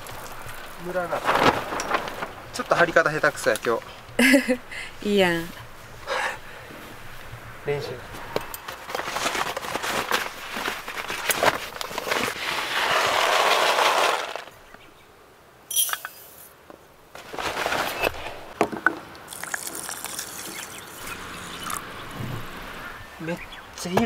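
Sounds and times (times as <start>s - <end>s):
paper bag rustling: 0.0s - 4.5s, 8.6s - 14.6s, 17.1s - 18.6s
rice rattling into metal pot: 12.6s - 14.5s
metal pot clinks: 15.7s - 16.4s
water pouring from tap: 19.3s - 21.0s.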